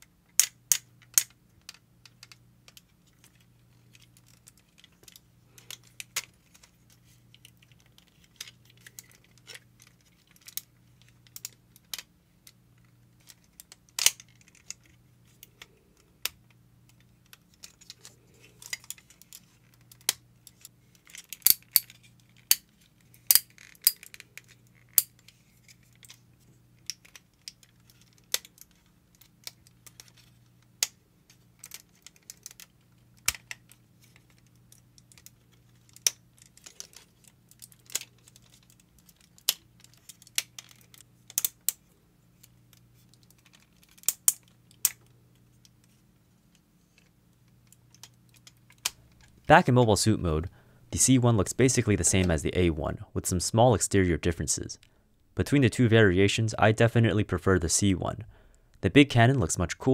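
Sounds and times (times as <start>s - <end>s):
plastic and metal figure joints clicking: 0.3s - 26.2s, 26.8s - 46.0s.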